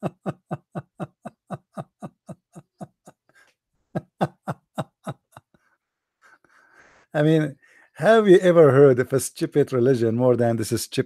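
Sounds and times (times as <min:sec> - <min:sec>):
man laughing: 0:00.0 - 0:05.6.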